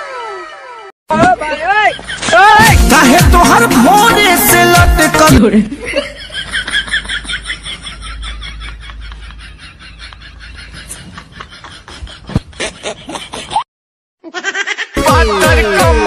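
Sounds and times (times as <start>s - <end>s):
snickering laughs: 5.8s - 13.6s.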